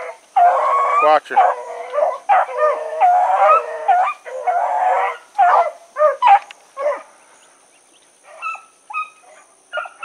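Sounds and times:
dogs barking: 0.0s - 7.1s, 8.3s - 10.0s
dogs howling: 0.0s - 7.1s.

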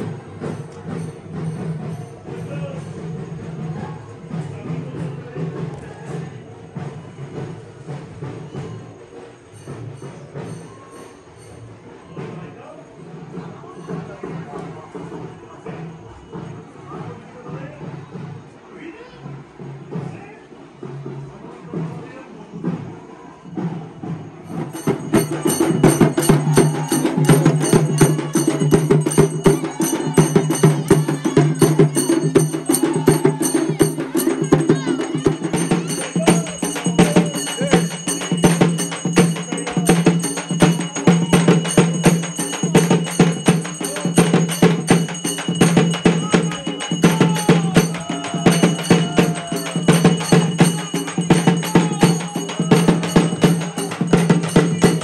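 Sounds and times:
ringing small cymbals: 0.0s - 17.3s, 20.9s - 55.0s
fast hand drumming: 24.5s - 55.0s.

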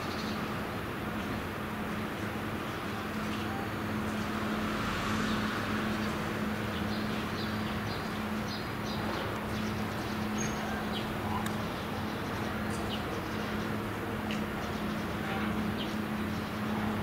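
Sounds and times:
diesel engine humming: 0.0s - 17.0s
small birds chirping: 5.2s - 17.0s.

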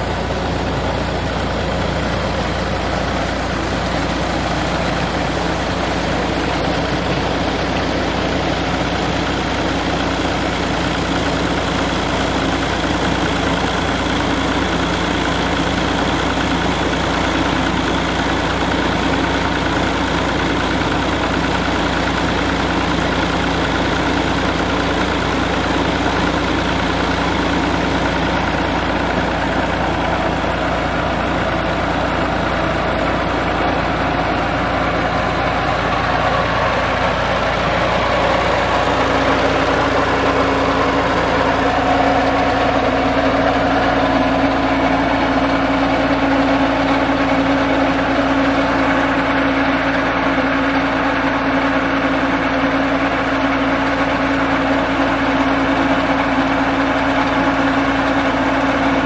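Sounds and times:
tractor diesel engine running: 0.0s - 59.0s
water gushing from pipe: 0.0s - 59.0s.

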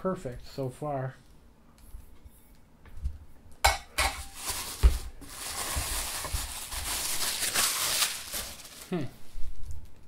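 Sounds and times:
wrapping crinkling and rustling: 4.2s - 10.0s.

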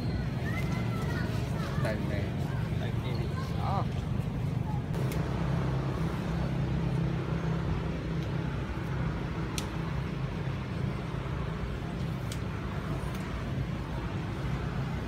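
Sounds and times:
steady low drone: 4.8s - 15.0s.

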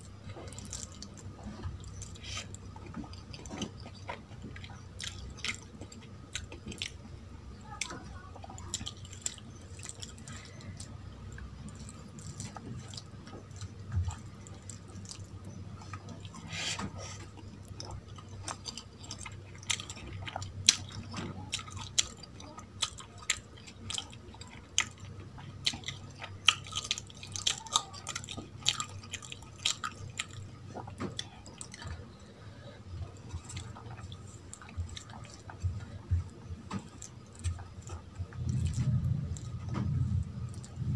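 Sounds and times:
wet chewing: 0.0s - 40.9s.

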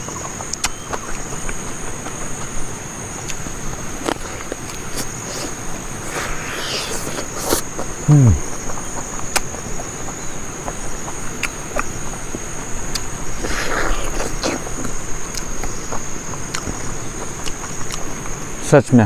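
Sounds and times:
high-pitched insect drone: 0.0s - 19.0s
wet mouth-smacking from eating: 0.5s - 2.5s, 4.0s - 9.6s, 12.9s - 18.1s.

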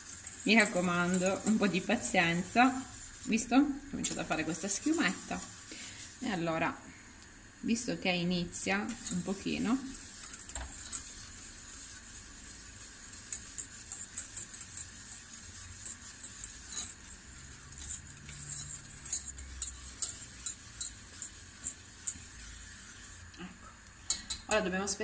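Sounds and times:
whisk scraping in metal pot: 0.0s - 6.8s, 8.6s - 23.3s.

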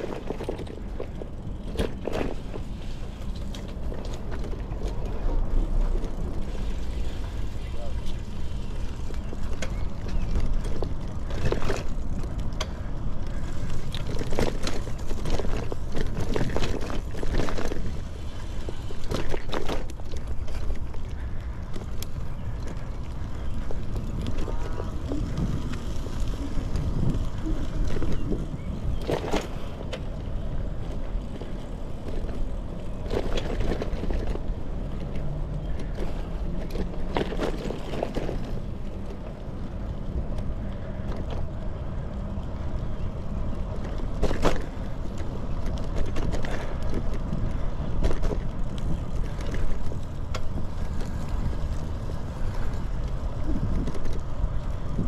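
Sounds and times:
bicycle tyres rumbling on pavement: 0.0s - 55.0s
wind noise on microphone: 9.8s - 35.0s, 36.7s - 55.0s.

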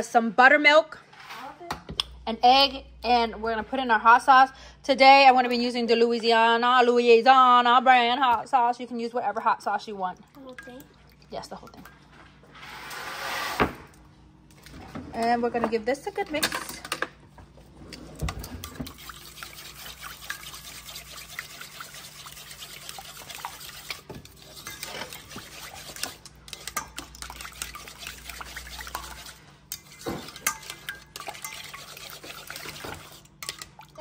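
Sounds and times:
wet batter sloshing: 18.0s - 34.0s
fork clinking against bowl: 24.6s - 25.2s, 28.9s - 31.9s.

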